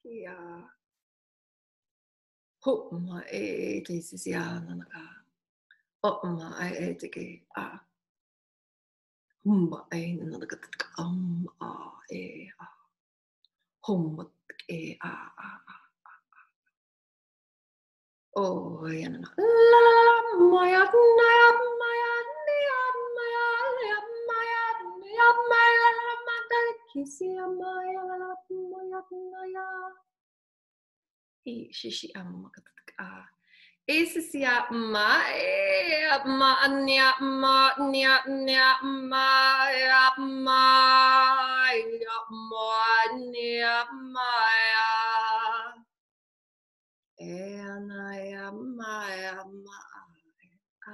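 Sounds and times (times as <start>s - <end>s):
woman singing wordless syllables: 18.4s - 30.1s, 33.9s - 45.8s, 47.2s - 50.0s.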